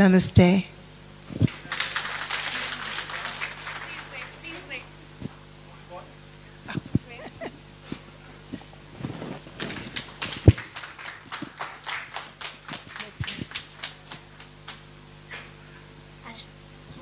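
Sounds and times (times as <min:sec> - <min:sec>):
sparse audience applause: 0:01.3 - 0:04.9, 0:09.4 - 0:15.0.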